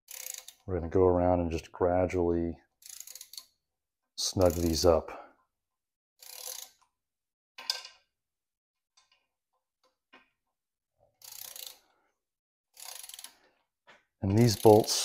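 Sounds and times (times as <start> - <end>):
torque wrench ratcheting clicks: 0.1 - 0.6, 2.8 - 3.5, 11.2 - 11.8, 12.8 - 13.3, 14.3 - 15.0.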